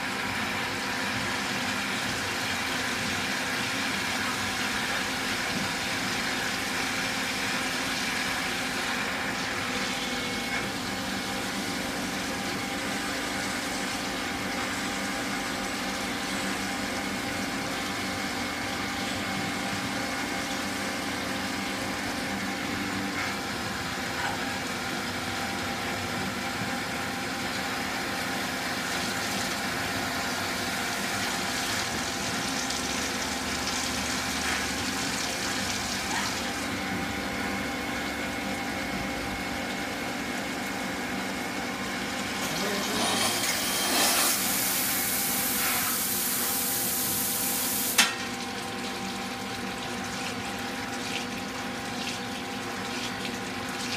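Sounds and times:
coolant spraying and splashing: 0:24.9 - 0:36.7, 0:44.1 - 0:53.9
lathe machine humming: 0:41.0 - 0:47.9.

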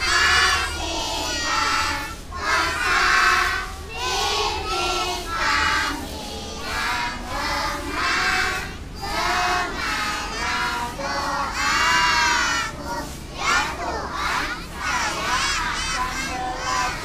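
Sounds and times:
children singing together: 0:00.0 - 0:17.0.

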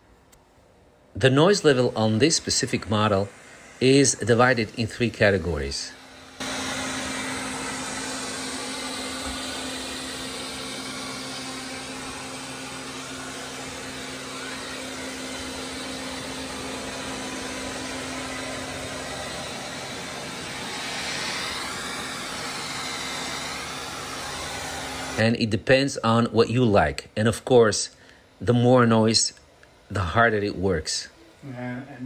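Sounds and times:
wavering high whine: 0:01.2 - 0:25.5
robot vacuum whirring: 0:01.5 - 0:25.2.

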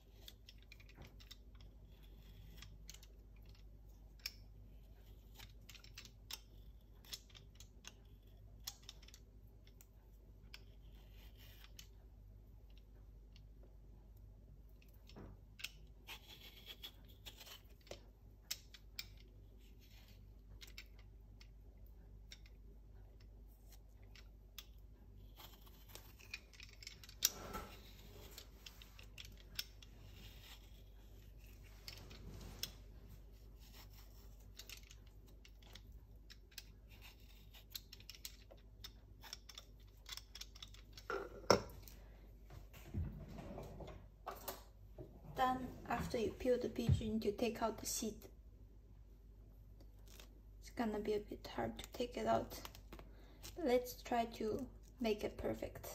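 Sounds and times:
vegetable peeler scraping fruit skin: 0:16.0 - 0:18.0, 0:25.2 - 0:28.4, 0:30.0 - 0:31.6, 0:33.4 - 0:34.6, 0:36.6 - 0:38.3.

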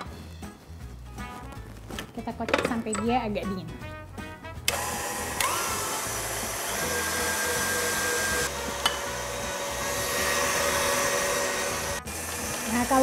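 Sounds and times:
stand mixer whisking: 0:04.7 - 0:13.0.

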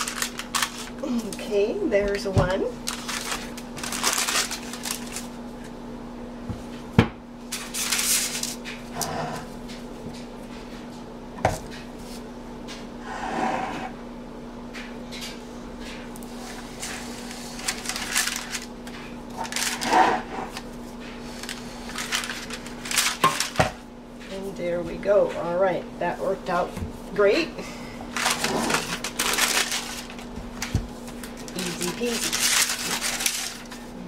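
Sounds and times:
paper rustling: 0:00.0 - 0:01.4, 0:02.8 - 0:05.4, 0:17.6 - 0:18.7, 0:19.4 - 0:19.9, 0:21.3 - 0:23.6, 0:28.1 - 0:33.9
steady low hum: 0:00.0 - 0:34.0.

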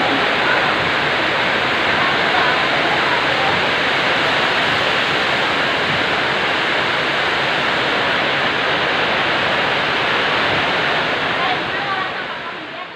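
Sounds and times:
heavy rain pouring: 0:00.0 - 0:12.9.

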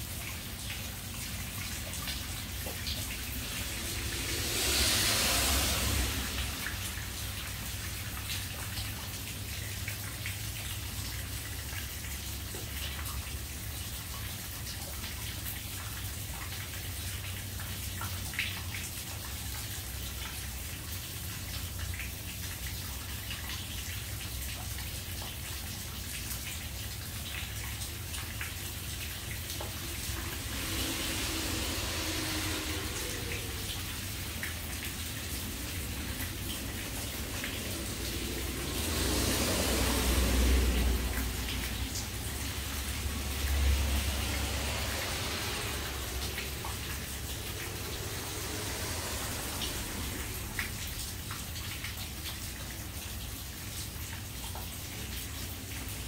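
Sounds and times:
water dripping: 0:00.0 - 0:56.0
water running and splashing: 0:00.0 - 0:56.0
hiss: 0:03.1 - 0:08.5, 0:29.2 - 0:51.3.

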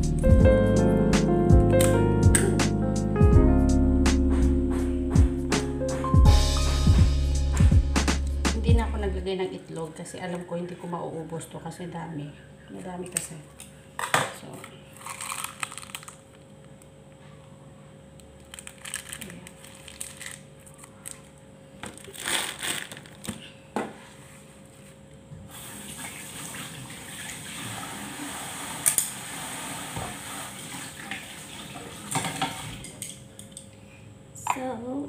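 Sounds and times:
tap running into a sink: 0:29.8 - 0:32.9.

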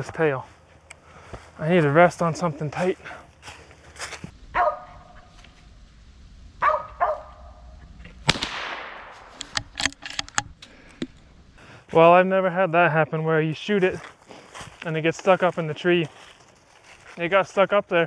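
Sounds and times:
dog barking: 0:04.5 - 0:05.3, 0:06.6 - 0:07.6
gunshot with echo: 0:08.2 - 0:09.4.

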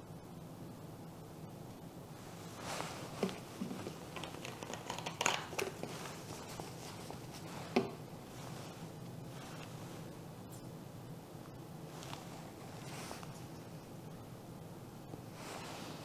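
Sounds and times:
plastic bottle crinkling: 0:03.0 - 0:08.0.

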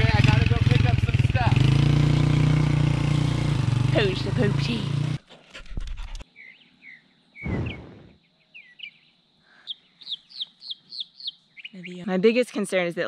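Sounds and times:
small birds chirping: 0:06.2 - 0:13.0.

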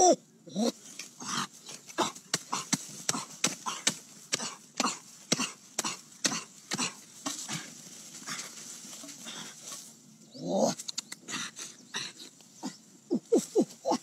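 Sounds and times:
hoe chopping dry earth: 0:01.7 - 0:07.7.

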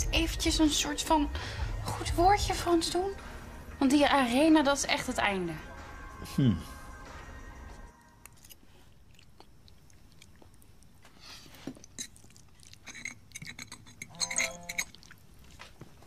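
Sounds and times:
slurping and chewing noodles: 0:08.0 - 0:16.0.

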